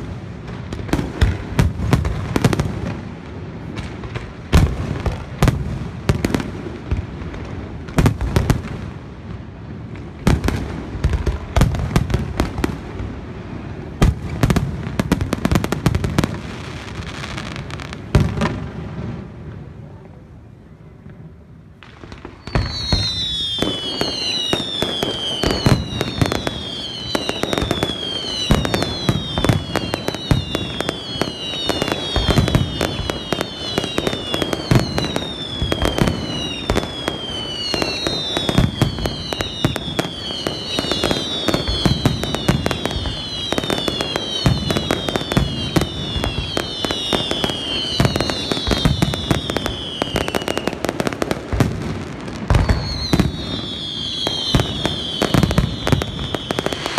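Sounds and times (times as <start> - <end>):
fireworks bangs and crackle: 0.0 - 56.9
falling firework whistles: 22.1 - 56.9.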